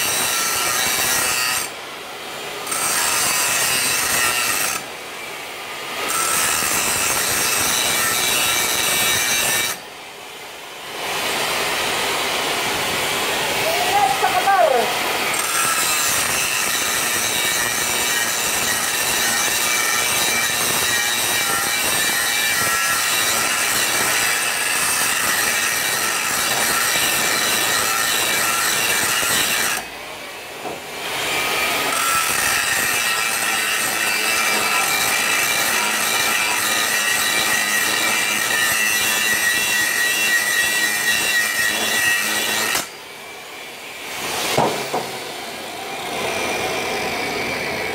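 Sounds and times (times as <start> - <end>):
welding arc hissing and buzzing: 0.0 - 1.7, 2.6 - 4.9, 6.0 - 9.8, 14.0 - 29.9, 31.1 - 42.9.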